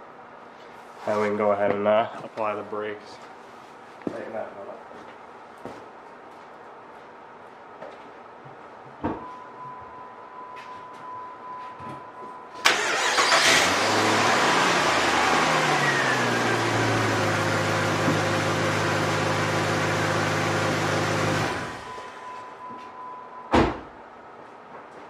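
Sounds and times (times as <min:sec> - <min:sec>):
engine cranking and starting: 0:12.6 - 0:16.5.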